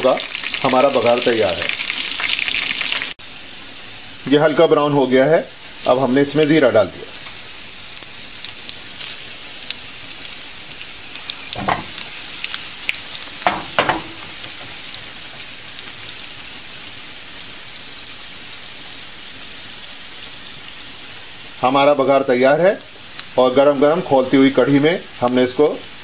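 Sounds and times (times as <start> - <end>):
hot oil sizzling in pan: 0.0 - 26.0.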